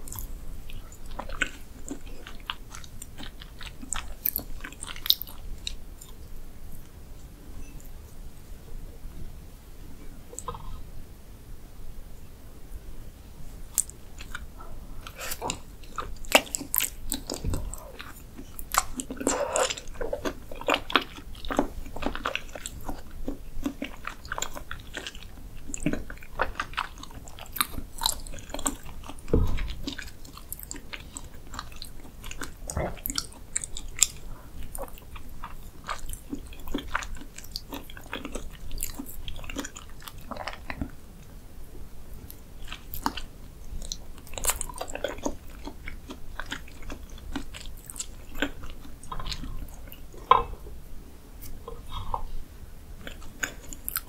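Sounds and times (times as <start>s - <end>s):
wet chewing and mouth smacks: 0.0s - 7.0s, 13.7s - 41.0s, 42.2s - 50.6s, 53.0s - 54.0s.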